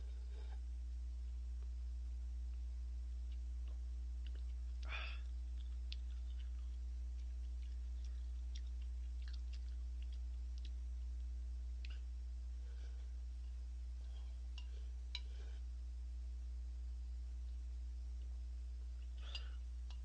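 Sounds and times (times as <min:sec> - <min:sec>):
low electrical hum: 0:00.0 - 0:20.0
soft chewing with small clicks: 0:02.4 - 0:15.8, 0:17.3 - 0:20.0.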